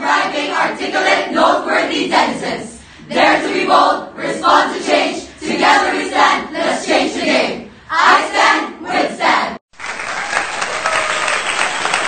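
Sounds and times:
young voices chanting in unison: 0.0 - 9.6
applause: 9.7 - 12.0.

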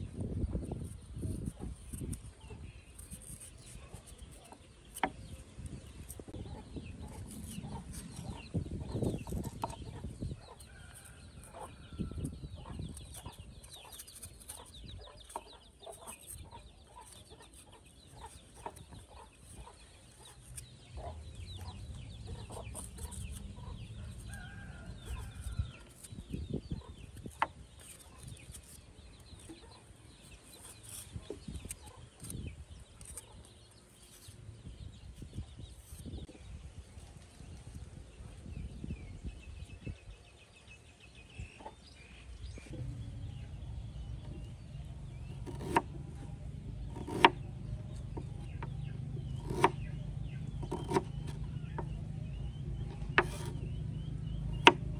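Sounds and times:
chickens clucking: 6.3 - 20.3, 26.4 - 27.1.

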